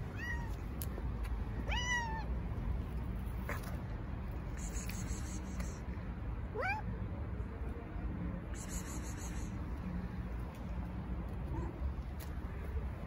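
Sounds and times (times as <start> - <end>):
cat meowing: 0.1 - 0.6, 1.6 - 2.3.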